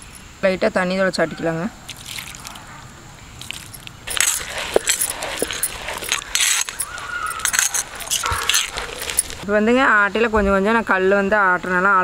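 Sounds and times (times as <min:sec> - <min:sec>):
stone roller grinding peanuts: 0:03.4 - 0:09.4.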